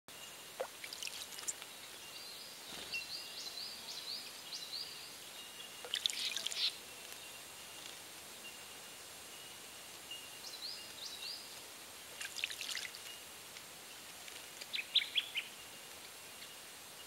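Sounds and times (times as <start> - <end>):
bird splashing in water: 0.6 - 1.6, 5.9 - 6.7, 12.2 - 13.1.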